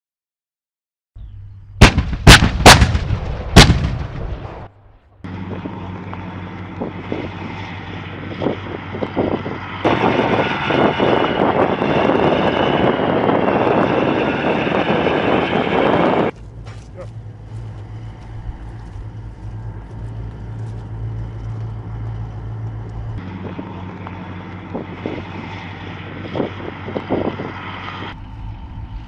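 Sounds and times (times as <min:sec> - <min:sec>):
artillery gun boom: 0:01.8 - 0:04.7
diesel engine running: 0:03.8 - 0:29.0.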